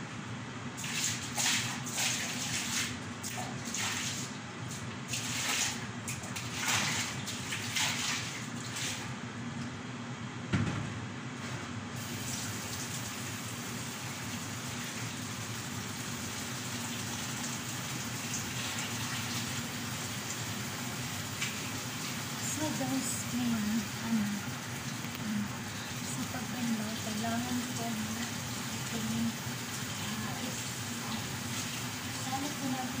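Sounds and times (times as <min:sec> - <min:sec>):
knock: 0:10.5 - 0:10.9
running water: 0:12.0 - 0:33.0.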